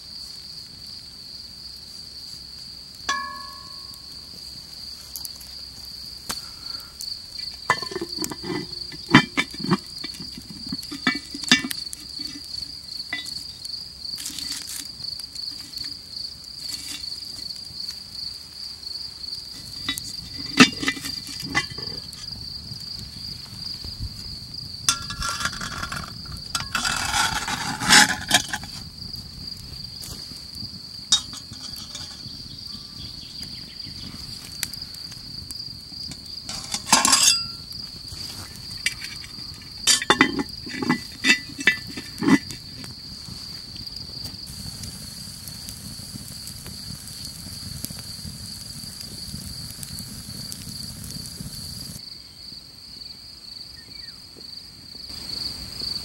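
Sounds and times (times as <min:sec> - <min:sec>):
crickets chirping: 0:00.0 - 0:56.0
pot lid clicks and knocks: 0:03.1 - 0:04.0, 0:07.7 - 0:12.4, 0:19.8 - 0:22.0, 0:24.9 - 0:28.7, 0:31.1 - 0:32.2, 0:36.5 - 0:37.6, 0:39.9 - 0:42.6
scraping and rustling: 0:07.4 - 0:13.5, 0:14.1 - 0:16.0, 0:16.6 - 0:17.5, 0:19.5 - 0:22.4, 0:24.9 - 0:28.9, 0:31.1 - 0:32.4, 0:36.1 - 0:44.4
clatter: 0:24.9 - 0:28.7.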